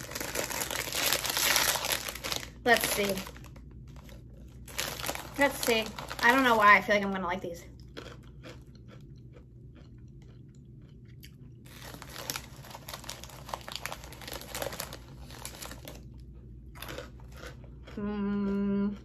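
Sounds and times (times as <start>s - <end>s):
chewing crunchy snack: 0.0s - 19.0s
person humming mmm: 18.0s - 19.0s.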